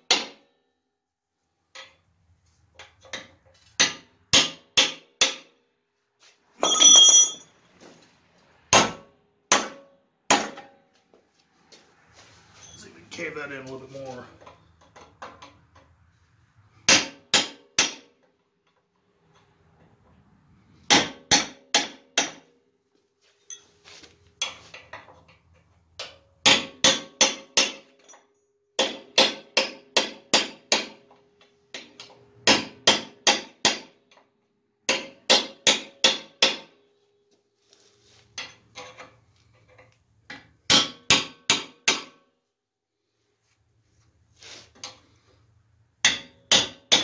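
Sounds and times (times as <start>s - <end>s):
hammer striking chisel on steel: 0.0s - 0.5s, 2.8s - 5.6s, 8.7s - 10.8s, 16.8s - 18.2s, 20.9s - 22.6s, 26.0s - 31.1s, 31.7s - 34.0s, 34.9s - 36.8s, 40.3s - 42.3s, 46.0s - 47.0s.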